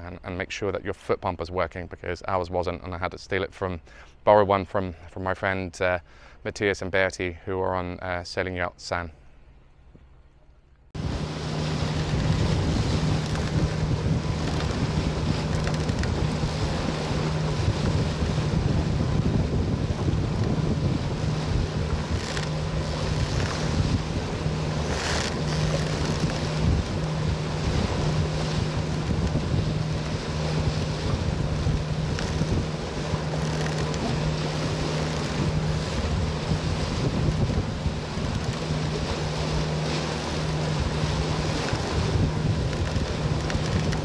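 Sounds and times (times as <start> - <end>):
sea waves washing: 10.9 - 44.0
wind buffeting microphone: 11.0 - 44.0.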